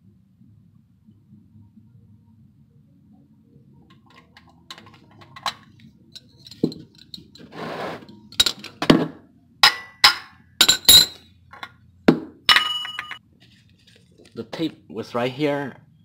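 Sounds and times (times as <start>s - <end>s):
wrench clinking on metal: 4.1s - 7.5s, 8.3s - 8.8s, 9.6s - 11.8s, 12.5s - 13.2s.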